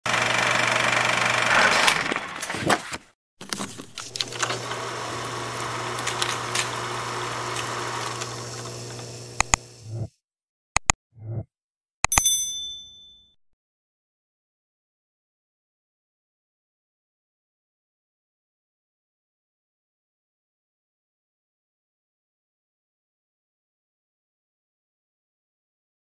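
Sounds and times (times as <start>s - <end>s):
film projector whirring and clattering: 0.0s - 9.8s
sharp clicks: 9.4s - 9.6s
bright ding: 12.1s - 13.4s.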